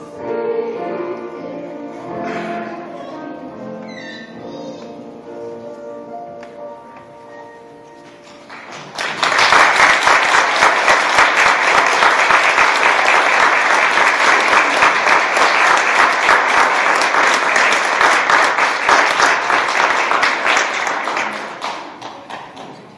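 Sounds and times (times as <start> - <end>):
held notes of music: 0.0 - 8.7
congregation applauding: 8.4 - 22.9.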